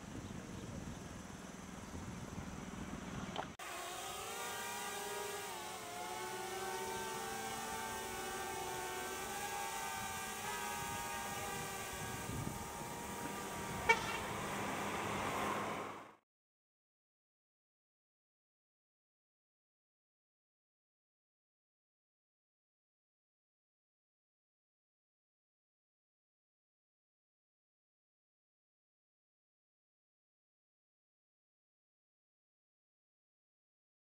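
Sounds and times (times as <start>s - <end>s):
drone propellers buzzing: 0.4s - 16.2s.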